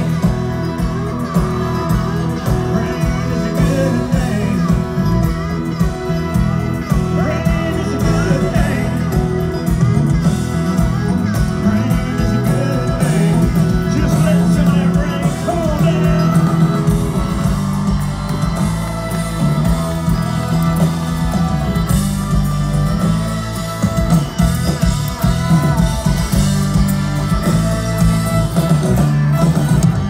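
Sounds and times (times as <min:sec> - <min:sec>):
drums: 0:00.0 - 0:30.0
guitars: 0:00.0 - 0:30.0
man singing: 0:02.4 - 0:05.4, 0:06.9 - 0:09.5, 0:11.3 - 0:17.0.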